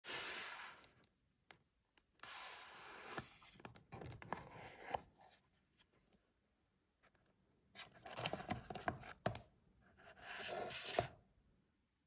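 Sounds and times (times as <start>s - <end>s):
cardboard box sliding and rubbing: 10.2s - 11.1s.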